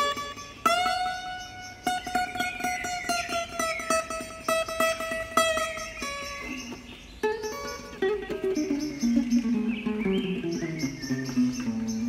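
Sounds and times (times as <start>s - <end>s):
fingerpicked classical guitar: 0.0s - 12.0s.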